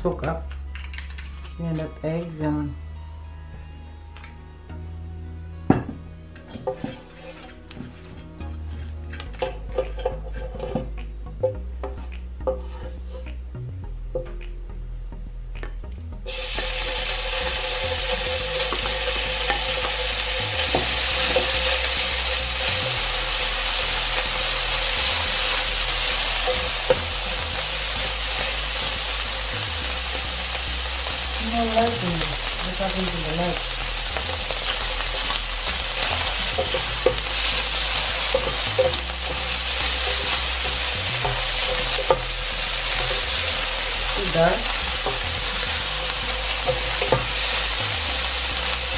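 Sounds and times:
spatula scraping pan: 0:06.4 - 0:10.9
steak sizzling in oil: 0:16.3 - 0:48.9.

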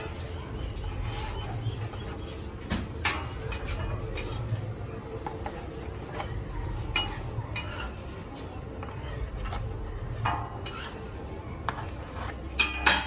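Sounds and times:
metal spatula clinking on griddle: 0:03.0 - 0:04.5, 0:06.9 - 0:08.0, 0:12.6 - 0:13.0.

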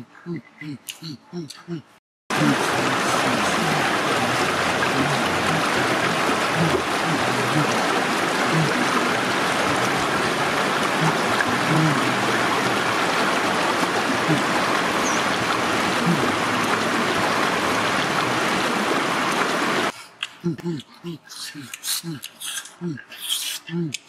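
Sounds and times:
stream water rushing: 0:02.3 - 0:19.9.

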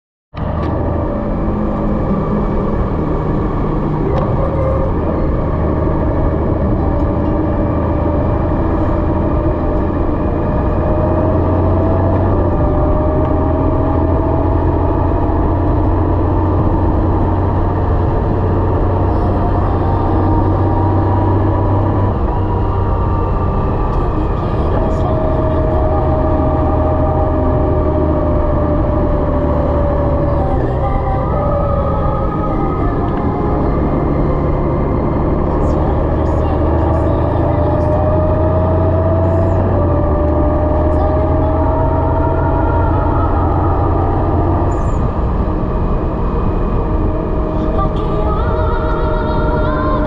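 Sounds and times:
wind and road noise: 0:00.3 - 0:50.0
motorcycle engine cruising: 0:00.4 - 0:50.0
whine rising in pitch: 0:00.4 - 0:50.0.

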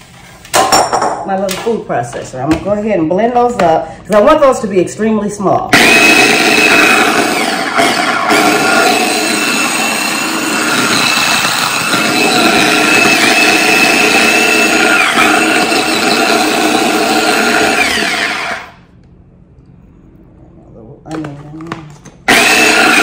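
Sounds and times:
electric food chopper motor whine: 0:05.7 - 0:18.8, 0:22.2 - 0:23.0.

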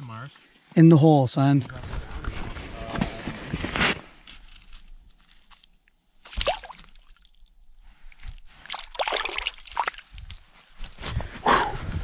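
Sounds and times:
water splashing and sloshing: 0:06.2 - 0:10.7.

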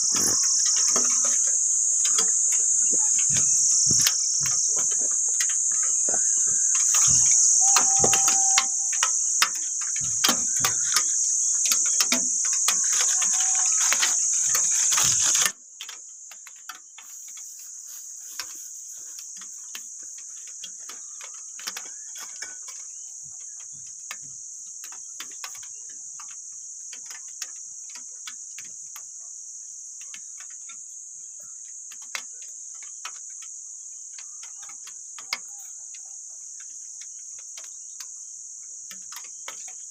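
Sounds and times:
handling clicks and rustles: 0:00.0 - 0:17.5
insects chirring: 0:00.0 - 0:39.9.

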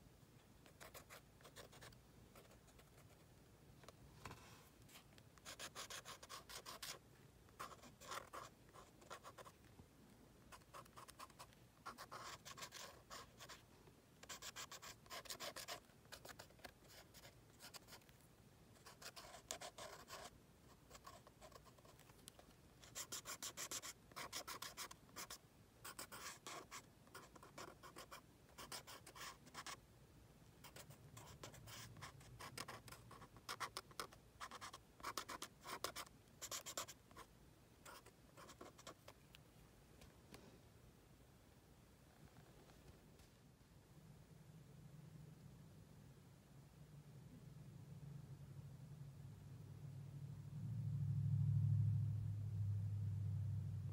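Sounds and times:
pen scratching on paper: 0:00.6 - 0:03.2, 0:04.9 - 0:07.0, 0:07.6 - 0:09.6, 0:10.5 - 0:13.6, 0:14.2 - 0:18.0, 0:18.8 - 0:22.0, 0:22.8 - 0:29.8, 0:30.6 - 0:39.0.

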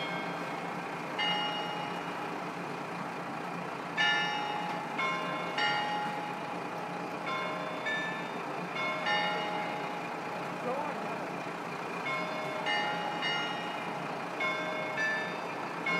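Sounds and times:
bell-like chimes: 0:00.0 - 0:00.6, 0:01.2 - 0:02.3, 0:04.0 - 0:06.6, 0:07.2 - 0:10.3, 0:12.0 - 0:15.9
diesel railcar engine idling: 0:00.0 - 0:15.9.

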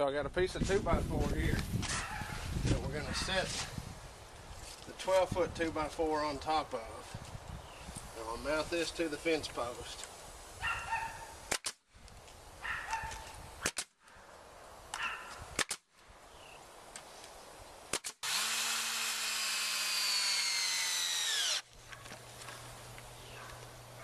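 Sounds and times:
nail gun firing into wood: 0:11.5 - 0:11.8, 0:13.6 - 0:13.9, 0:15.5 - 0:15.8, 0:17.9 - 0:21.6.

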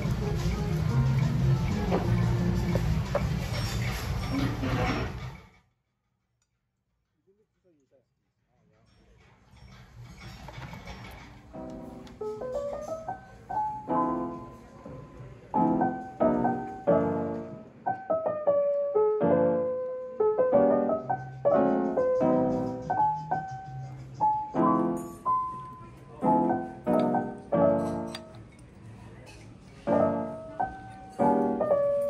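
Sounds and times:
piano music: 0:00.0 - 0:05.3, 0:11.5 - 0:28.6, 0:29.8 - 0:32.0.

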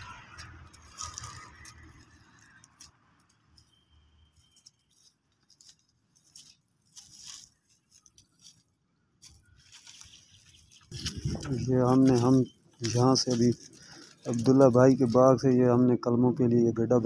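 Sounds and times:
dry canes and leaves rustling: 0:00.0 - 0:17.0.

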